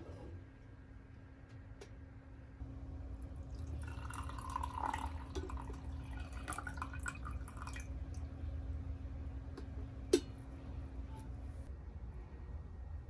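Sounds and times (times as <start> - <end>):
water pouring into a mug: 3.2 - 8.0.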